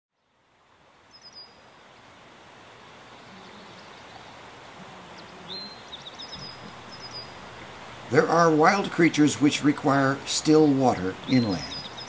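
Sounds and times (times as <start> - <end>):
steady pond hiss: 0.1 - 12.0
high bird chirps: 5.2 - 7.4, 11.2 - 12.0.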